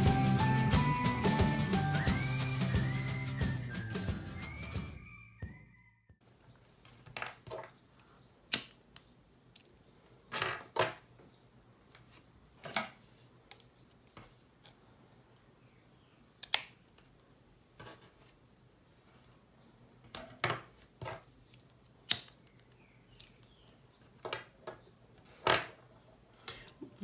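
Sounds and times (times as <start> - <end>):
ribbon rustling: 6.6 - 9.0.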